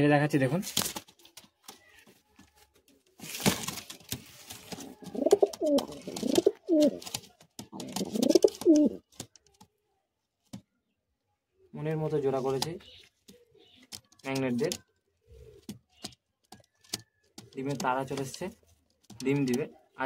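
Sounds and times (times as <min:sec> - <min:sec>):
pigeon cooing: 0:04.7 - 0:07.0, 0:07.7 - 0:09.1.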